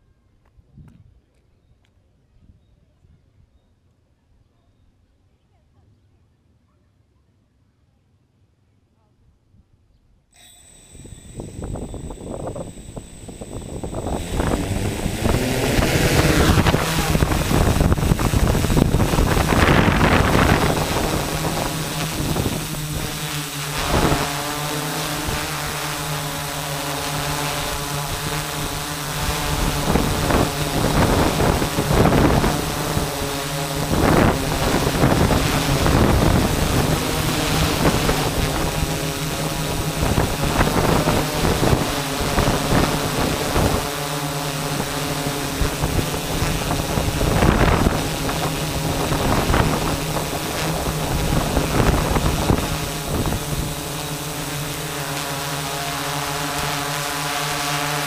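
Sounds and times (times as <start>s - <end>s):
drone propellers whining: 10.4s - 58.0s
wind buffeting microphone: 11.0s - 23.2s, 28.1s - 43.9s, 44.7s - 54.7s.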